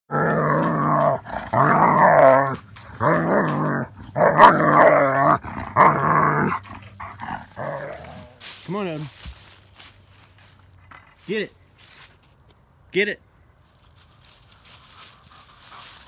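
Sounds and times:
dog growling: 0:00.1 - 0:08.4.

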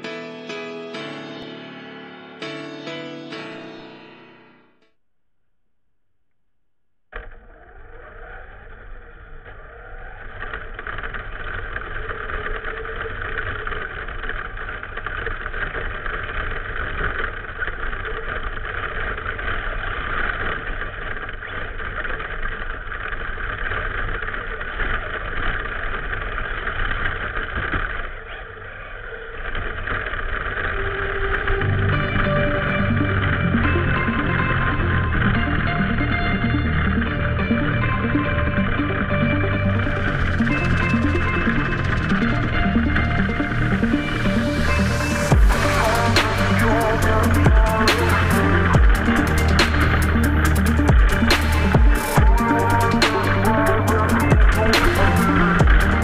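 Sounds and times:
rc truck driving over gravel: 0:07.2 - 0:31.8.

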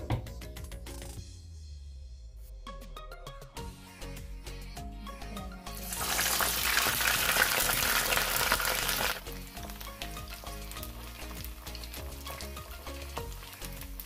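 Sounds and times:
food sizzling in hot oil: 0:05.8 - 0:14.0.

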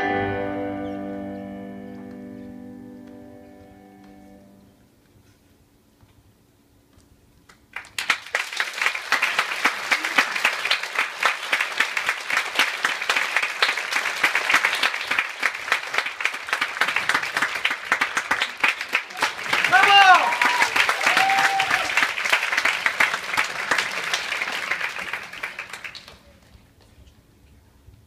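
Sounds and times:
music: 0:00.0 - 0:04.7
audience applause: 0:07.7 - 0:26.9.

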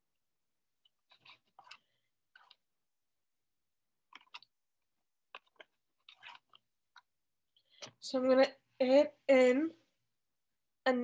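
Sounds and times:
spoon scraping in slime tub: 0:00.8 - 0:02.8, 0:04.0 - 0:07.8.

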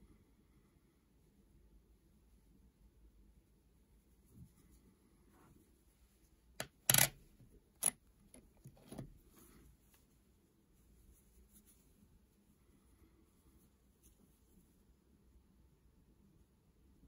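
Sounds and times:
coin clicking on hard surface: 0:06.6 - 0:07.2.

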